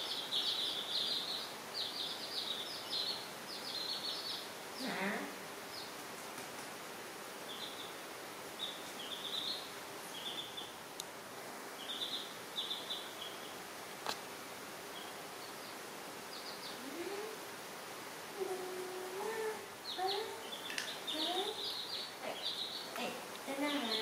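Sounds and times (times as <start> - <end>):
chicks peeping: 0.0 - 5.0, 7.4 - 10.8, 11.7 - 14.2, 14.8 - 17.5, 18.4 - 24.0
steady background hiss: 0.0 - 24.0.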